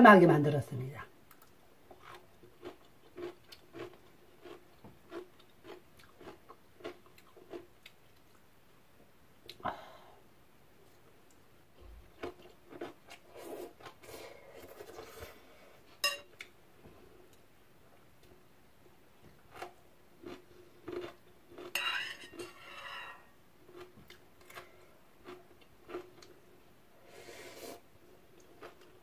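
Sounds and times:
chopsticks clinking against a bowl: 0:16.0 - 0:16.3.

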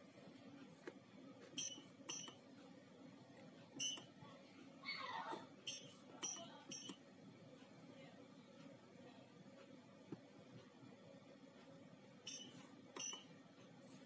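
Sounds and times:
short high keypad beeps: 0:01.6 - 0:02.4, 0:03.8 - 0:04.1, 0:05.7 - 0:07.0, 0:12.3 - 0:13.3.

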